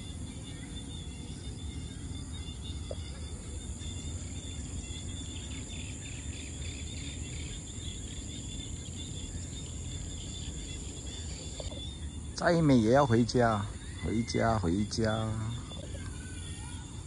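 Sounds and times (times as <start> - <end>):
insects shrilling drone: 0.0 - 17.0
quick insect chirps: 0.0 - 17.0.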